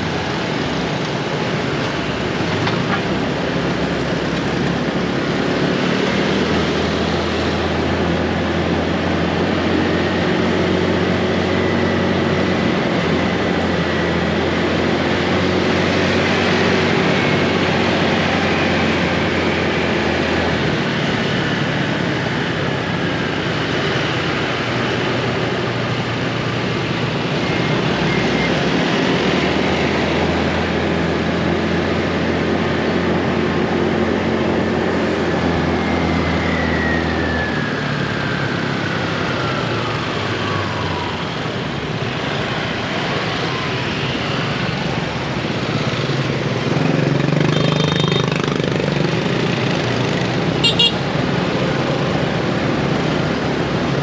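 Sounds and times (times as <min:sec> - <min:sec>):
other motorbikes: 0:00.0 - 0:54.0
road and wind noise: 0:00.0 - 0:54.0
motorbike engine hum: 0:30.2 - 0:54.0.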